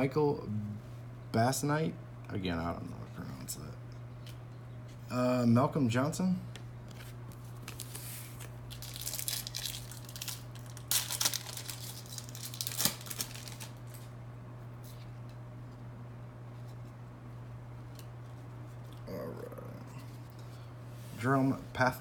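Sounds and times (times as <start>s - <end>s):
steady low hum: 0.0s - 22.0s
foil wrapper tearing and crinkling: 7.6s - 14.1s.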